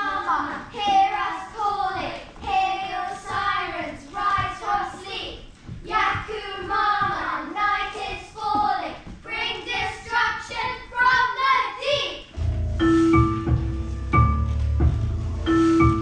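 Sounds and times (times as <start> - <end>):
instrumental music with deep bass: 12.4 - 16.0.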